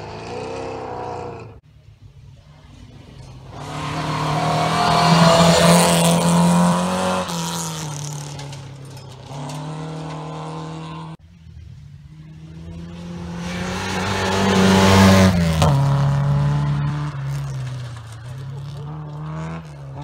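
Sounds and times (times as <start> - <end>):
rally car engine at full throttle: 0.0 - 20.0
car passing by: 3.5 - 8.3, 12.4 - 20.0.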